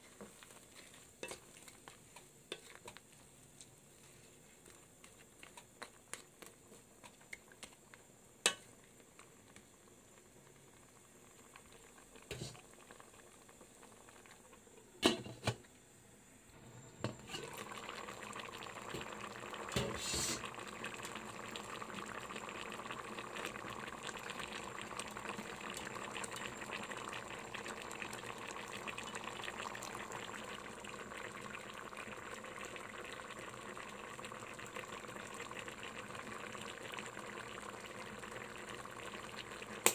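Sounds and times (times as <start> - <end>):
wooden spatula stirring a pot: 0.0 - 9.6
sauce bubbling: 0.0 - 15.0, 17.1 - 39.9.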